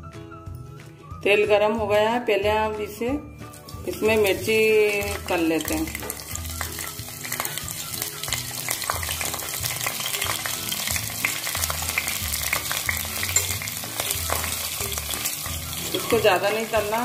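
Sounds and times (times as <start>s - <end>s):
chillies sizzling in hot oil: 2.3s - 17.0s
metal spoon stirring: 3.4s - 17.0s.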